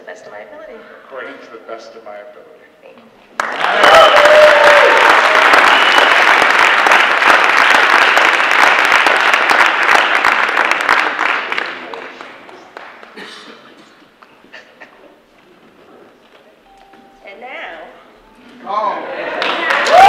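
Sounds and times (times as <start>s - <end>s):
audience applauding: 3.4s - 13.4s, 19.0s - 20.0s.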